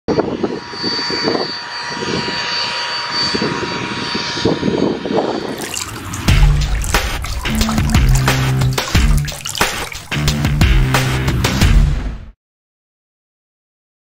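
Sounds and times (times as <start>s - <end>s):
jet engine hiss and whine: 0.1s - 5.4s.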